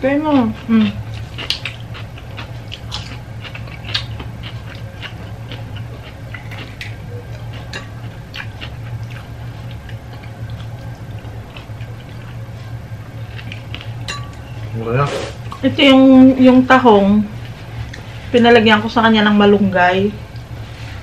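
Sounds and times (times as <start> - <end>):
steady low hum: 0.0 - 21.0
chewing and mouth noises: 0.3 - 14.6.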